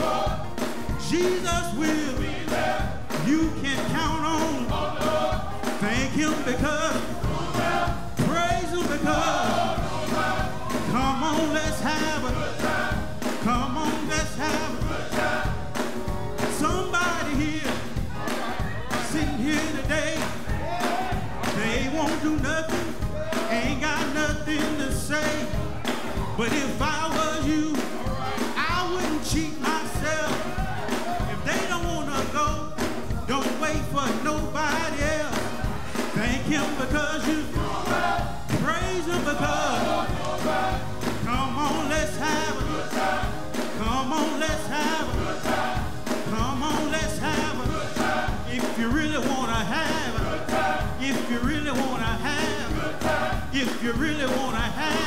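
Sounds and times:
male chorus backing vocals: 0:00.0 - 0:15.8, 0:16.4 - 0:55.0
band playing steady beat: 0:00.0 - 0:55.0
man singing into microphone: 0:01.0 - 0:02.3, 0:03.2 - 0:04.7, 0:05.6 - 0:07.2, 0:08.2 - 0:09.4, 0:10.8 - 0:12.4, 0:13.4 - 0:14.9, 0:16.5 - 0:17.9, 0:19.0 - 0:20.4, 0:21.5 - 0:25.6, 0:26.3 - 0:30.5, 0:31.3 - 0:35.4, 0:36.1 - 0:37.6, 0:38.5 - 0:39.7, 0:41.2 - 0:42.8, 0:43.7 - 0:45.2, 0:46.2 - 0:52.8, 0:53.4 - 0:55.0.

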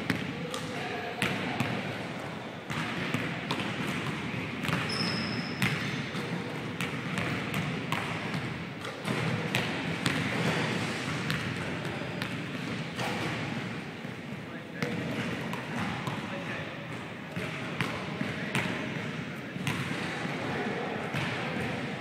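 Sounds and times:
basketballs bouncing on hardwood floor: 0:00.0 - 0:00.3, 0:01.2 - 0:01.8, 0:02.7 - 0:14.2, 0:17.4 - 0:19.9
steady background noise: 0:00.0 - 0:22.0.

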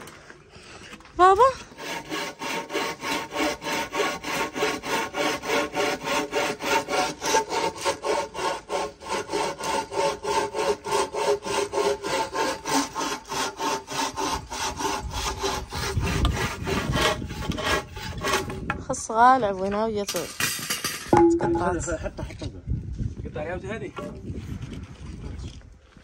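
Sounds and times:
bow saw cutting wood: 0:01.2 - 0:18.9.

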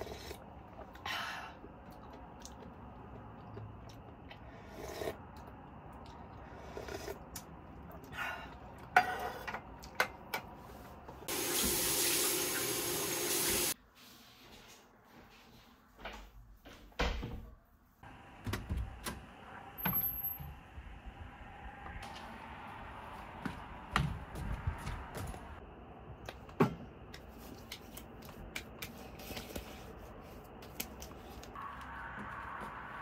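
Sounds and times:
shower running: 0:11.2 - 0:13.8.

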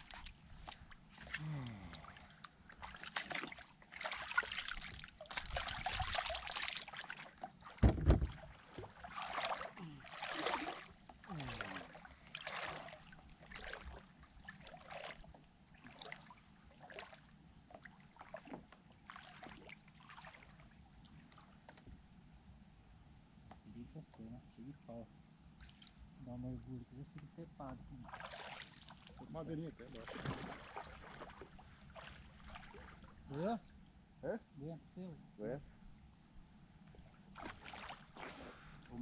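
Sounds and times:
wading through shallow water: 0:00.0 - 0:21.6, 0:27.7 - 0:33.8, 0:36.8 - 0:39.0
low thump: 0:07.8 - 0:08.9.

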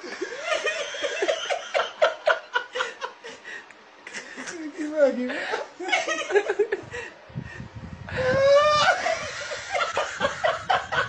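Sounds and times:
man laughing hard: 0:00.0 - 0:03.2, 0:08.2 - 0:11.0.

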